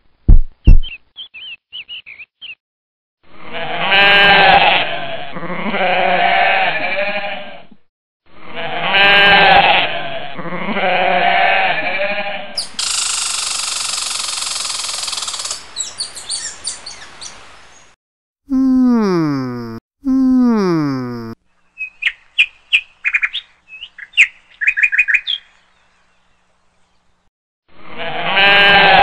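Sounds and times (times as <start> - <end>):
sheep bleating: 3.3 - 7.7, 8.4 - 12.6, 28.0 - 29.0.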